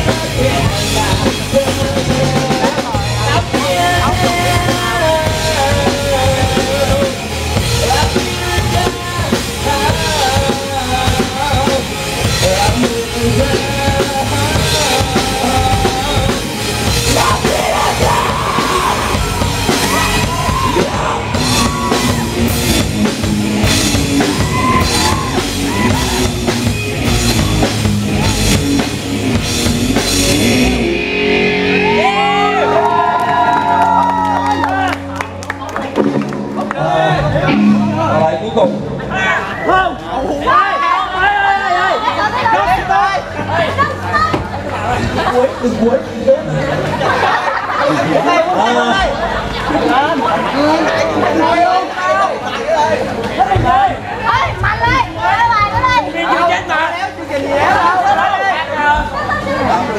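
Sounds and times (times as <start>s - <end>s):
person singing into a microphone: 0.0s - 19.2s
drum kit with cymbals: 0.0s - 32.0s
electric guitars: 0.0s - 39.5s.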